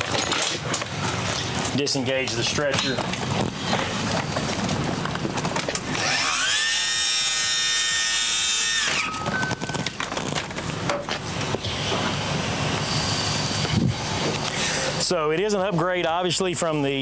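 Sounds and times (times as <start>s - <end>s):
hydraulic motor whining: 5.6s - 15.0s.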